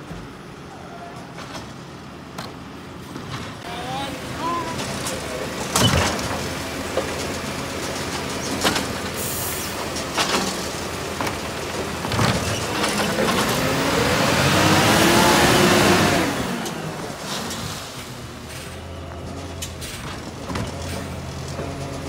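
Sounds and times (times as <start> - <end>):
garbage truck diesel engine: 0.0 - 22.0
bin and arm clunking: 4.7 - 13.7, 18.6 - 22.0.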